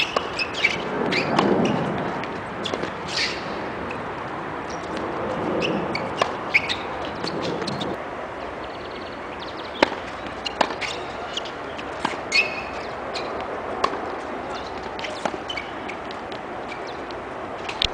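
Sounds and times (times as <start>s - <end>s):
tennis ball struck by racket: 0.0s - 4.1s, 9.6s - 17.8s
birds chirping: 2.6s - 4.0s, 4.6s - 17.9s.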